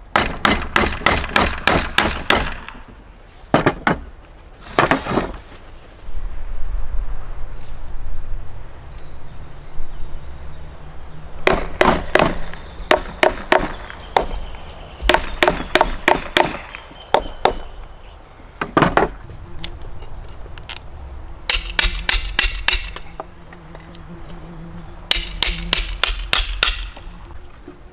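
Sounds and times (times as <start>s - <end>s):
hammer striking wooden log: 0.1s - 2.9s, 11.4s - 14.4s, 15.1s - 17.7s, 21.5s - 23.3s, 25.1s - 27.1s.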